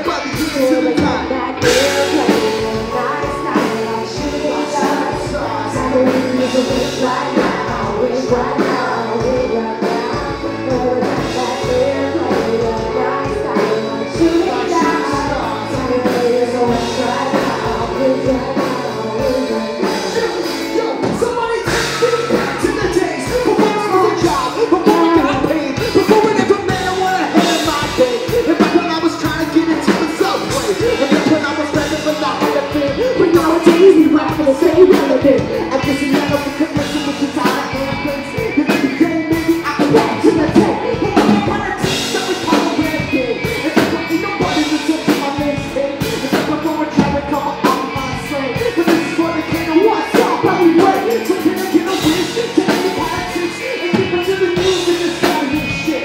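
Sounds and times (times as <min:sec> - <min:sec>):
live rock band playing: 0:00.0 - 0:56.0
person singing: 0:00.0 - 0:56.0.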